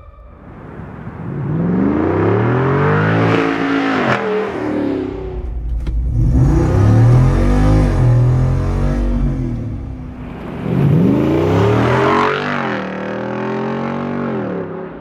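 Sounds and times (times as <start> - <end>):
car engine accelerating: 0.0 - 15.0.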